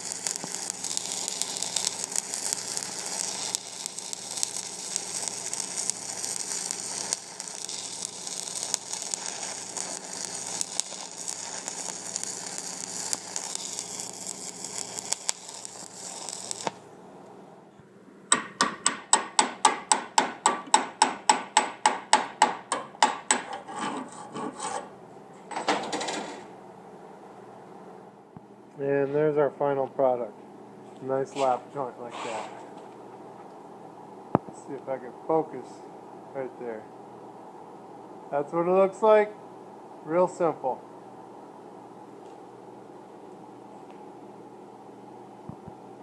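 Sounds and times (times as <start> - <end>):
welding arc crackling and hissing: 0.0 - 16.8.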